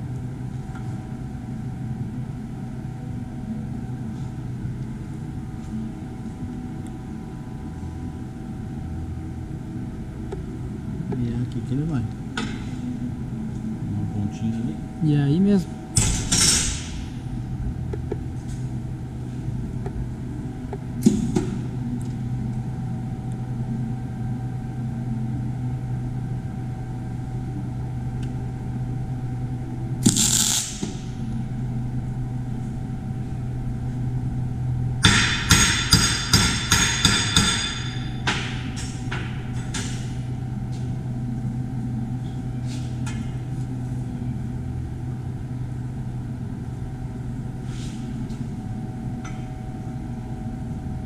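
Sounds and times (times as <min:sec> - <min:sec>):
steady low hum: 0:00.0 - 0:51.0
electric arc welding burst: 0:30.0 - 0:31.1
metallic strikes on steel: 0:35.0 - 0:40.1.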